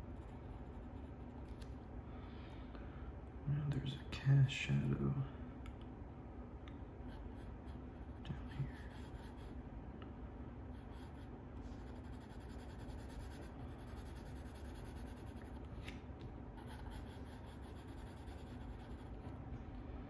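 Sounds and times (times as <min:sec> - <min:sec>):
pencil scratching on paper: 0:00.0 - 0:01.4, 0:07.1 - 0:09.5, 0:10.7 - 0:15.7, 0:16.6 - 0:19.2
low background hum: 0:00.0 - 0:20.0.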